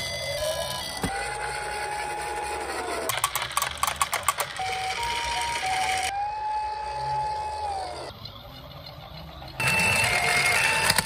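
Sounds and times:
toy siren steady tone: 0:00.0 - 0:03.1, 0:04.3 - 0:08.2, 0:09.6 - 0:11.0
rapid clicking and rattling: 0:03.1 - 0:04.9
two-tone hi-lo siren: 0:04.6 - 0:08.1.

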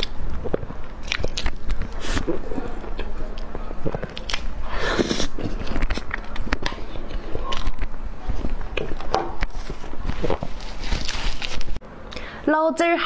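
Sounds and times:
mouth smacks and chewing: 0:00.0 - 0:09.0.

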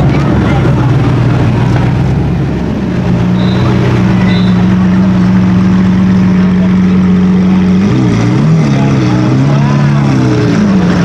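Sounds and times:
sports car engine running: 0:00.0 - 0:11.0.

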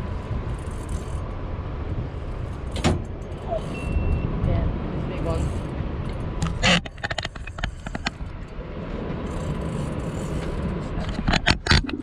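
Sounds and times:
sea: 0:00.0 - 0:12.0
fishing gear clicking and knocking: 0:05.6 - 0:08.6, 0:09.2 - 0:12.0.

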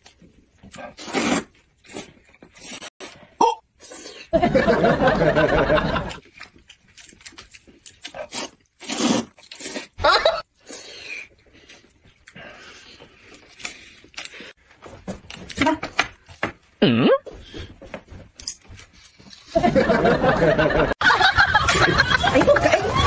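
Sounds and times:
people slurping noodles: 0:00.7 - 0:04.4, 0:08.0 - 0:14.5.

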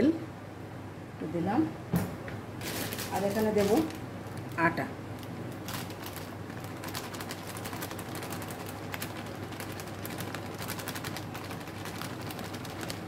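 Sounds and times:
steady low hum: 0:00.0 - 0:13.0
plastic packet crinkling: 0:02.6 - 0:13.0.

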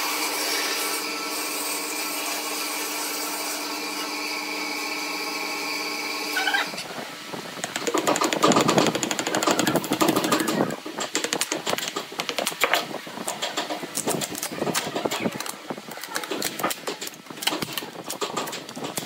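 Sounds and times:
plastic sheet crackling and scraping: 0:07.7 - 0:19.0.

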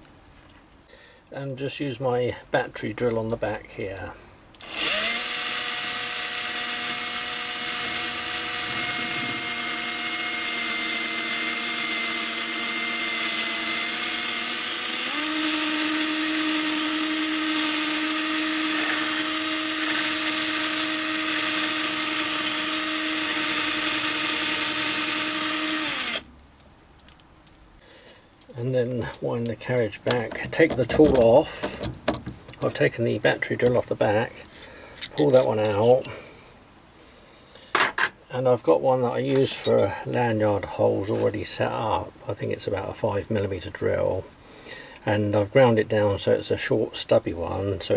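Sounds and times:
cordless drill motor whine: 0:04.6 - 0:26.3.

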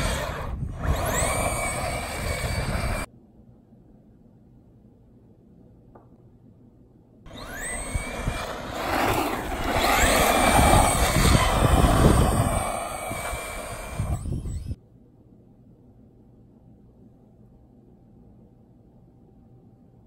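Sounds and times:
rc truck motor whine: 0:00.0 - 0:03.1, 0:07.3 - 0:14.8
tyres rumbling on dirt: 0:07.3 - 0:14.6.

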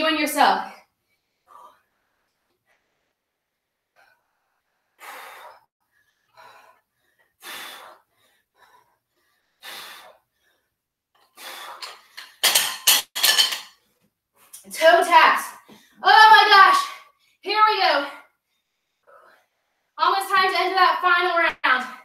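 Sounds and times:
woman breathing heavily: 0:00.9 - 0:12.4, 0:18.2 - 0:20.0.

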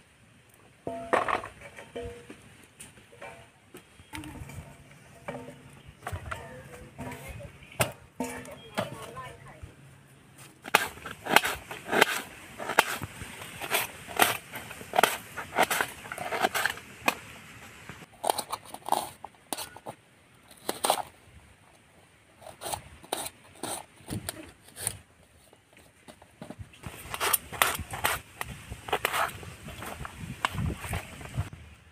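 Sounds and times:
knife slicing onions on steel: 0:10.6 - 0:17.1, 0:26.8 - 0:30.0.

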